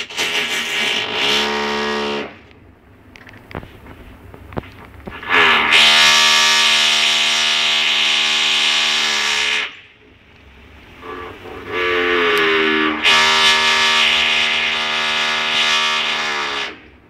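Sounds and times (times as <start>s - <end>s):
droning hum: 0.0s - 17.0s.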